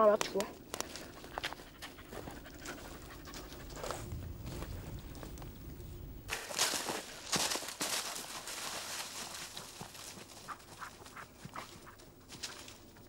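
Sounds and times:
dry leaves and twigs crackling: 0.0 - 13.0
dog panting: 0.8 - 4.8.

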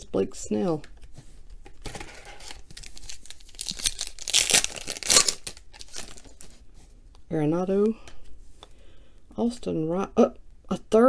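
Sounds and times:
foil wrapper crinkling: 1.8 - 6.5
foil wrapper tearing: 2.4 - 6.5
sharp crackle: 2.8 - 6.3.

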